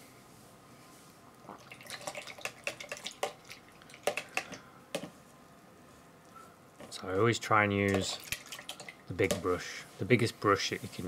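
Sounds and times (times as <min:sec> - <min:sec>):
paintbrush splashing in water: 0:07.9 - 0:09.5.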